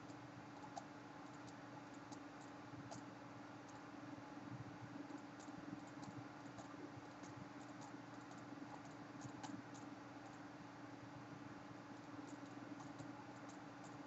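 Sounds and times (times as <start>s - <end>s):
light clicks and ticks: 0.0s - 3.8s, 5.0s - 10.4s, 12.0s - 14.0s
faint electrical hum: 0.0s - 14.0s.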